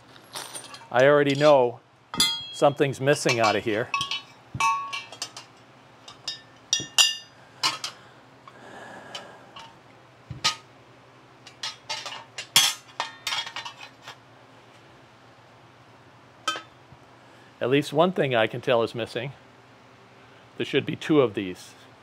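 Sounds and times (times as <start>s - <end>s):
metal pieces clinking and knocking: 0.1s - 1.5s, 2.2s - 8.0s
metal piece ringing: 2.1s - 5.4s, 6.1s - 7.9s, 16.5s - 16.7s.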